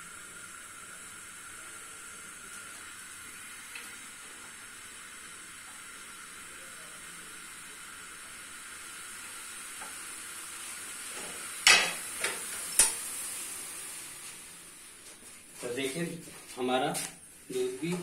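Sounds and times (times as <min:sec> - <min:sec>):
milk boiling with sizzling hiss: 0:00.0 - 0:18.0.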